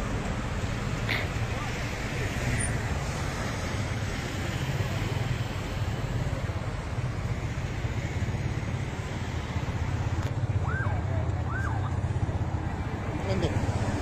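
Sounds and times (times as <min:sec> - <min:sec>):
road noise: 0:00.0 - 0:14.0.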